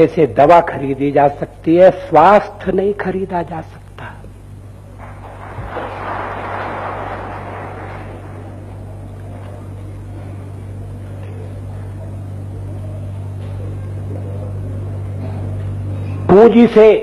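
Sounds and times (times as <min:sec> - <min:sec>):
steady low hum: 0:00.0 - 0:17.0
audience applauding: 0:05.0 - 0:09.7.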